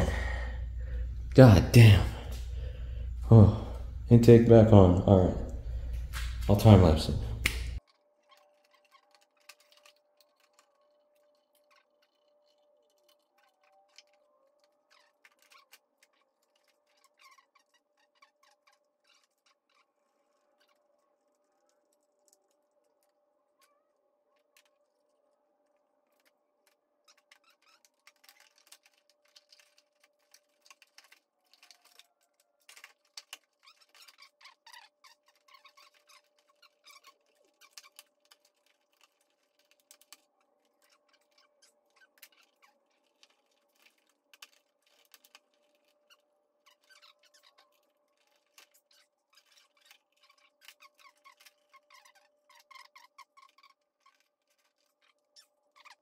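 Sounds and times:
faint steady hum: 0.0s - 7.8s
ratchet and plastic parts clicking: 5.4s - 56.0s.

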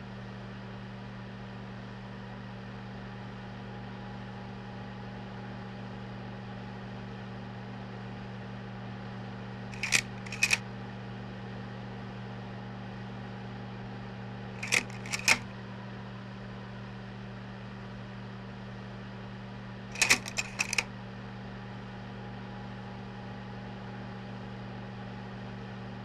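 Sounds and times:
projector hum: 9.8s - 10.6s, 14.6s - 15.5s, 20.0s - 20.9s
sharp mechanical clicks: 9.8s - 10.6s, 14.6s - 15.5s, 20.0s - 20.9s.

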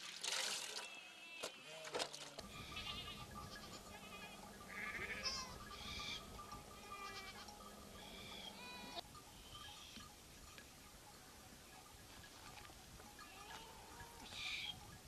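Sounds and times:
goats bleating: 1.0s - 9.0s, 13.2s - 14.7s.

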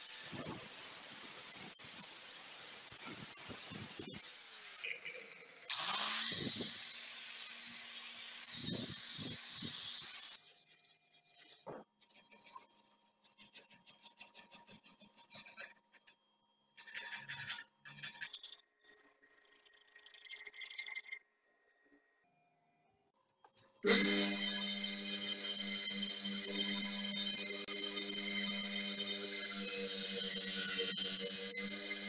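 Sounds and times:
angle grinder polishing steel: 0.0s - 10.4s, 23.8s - 32.0s.

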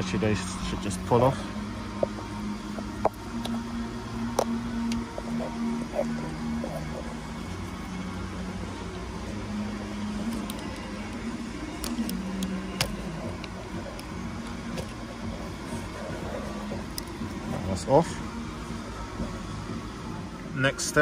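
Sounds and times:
low wavering workshop hum: 0.0s - 21.0s
wire connectors clicking: 4.3s - 5.3s, 10.2s - 15.1s, 16.8s - 17.4s.

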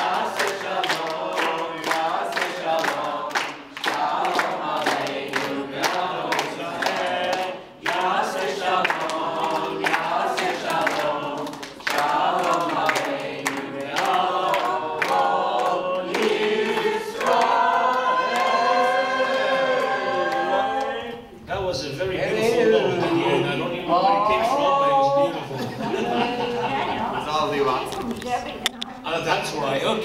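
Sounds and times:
hand clapping in time: 0.0s - 18.6s
group of voices singing: 0.0s - 21.4s.

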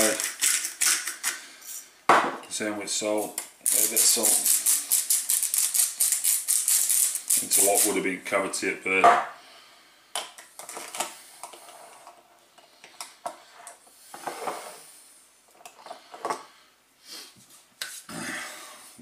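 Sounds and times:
pepper grinder rattling: 0.0s - 1.4s, 3.6s - 8.0s
seasoning jars clicking and rattling: 0.0s - 1.4s.

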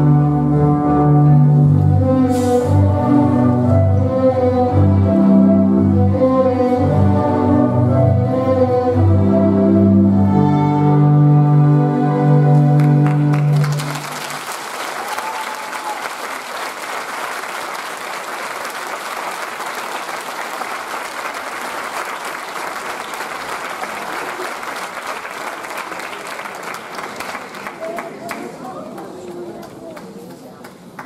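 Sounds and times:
held musical chord: 0.0s - 14.2s
audience applauding: 12.5s - 31.0s.

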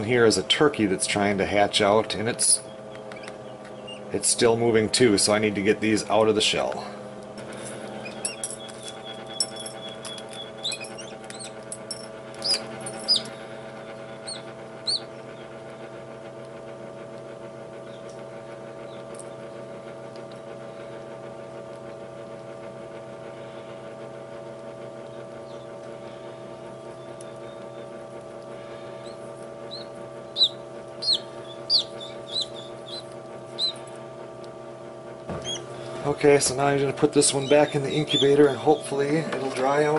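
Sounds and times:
egg incubator humming: 0.0s - 39.9s
chicks peeping: 2.7s - 4.1s, 7.9s - 11.6s, 12.4s - 15.5s, 29.0s - 33.9s, 35.4s - 36.0s, 37.1s - 39.3s.

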